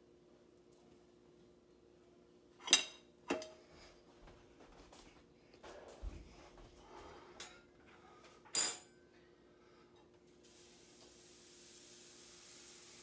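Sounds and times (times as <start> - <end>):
sharp ringing clink of dishes: 8.5 - 9.0.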